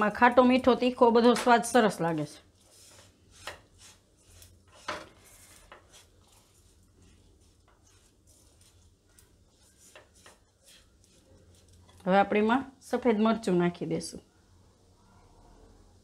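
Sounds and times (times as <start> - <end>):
spatula scraping a wok: 1.2 - 12.1.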